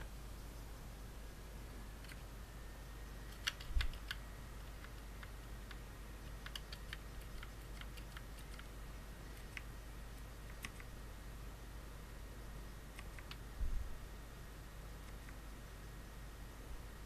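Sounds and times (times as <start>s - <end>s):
keyboard key clicks: 3.3s - 8.7s, 10.4s - 10.9s, 13.0s - 13.4s.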